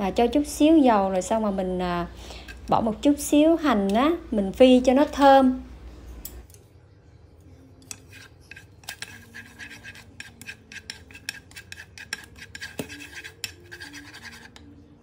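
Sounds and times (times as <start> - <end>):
chopsticks scraping frying pan: 7.8 - 14.7.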